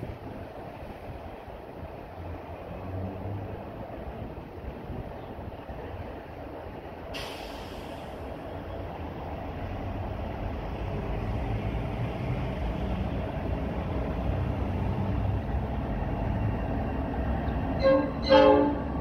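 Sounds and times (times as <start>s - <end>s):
locomotive rumble: 0.0s - 19.0s
train horn: 17.8s - 19.0s.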